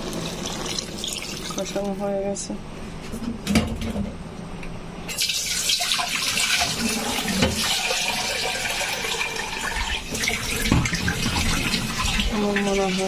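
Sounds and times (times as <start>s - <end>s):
water pouring into a pot: 0.0s - 1.8s, 5.1s - 13.0s.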